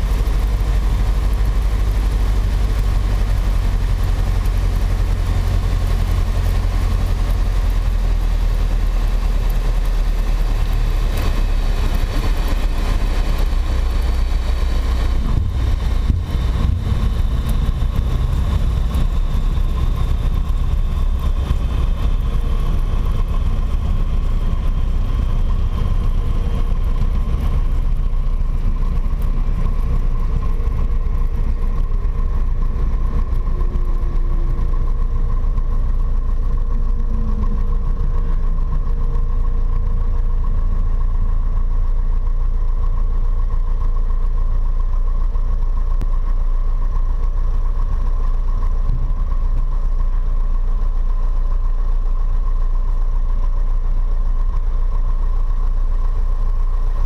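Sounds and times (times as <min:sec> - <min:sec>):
airplane engine droning: 0:00.0 - 0:42.8.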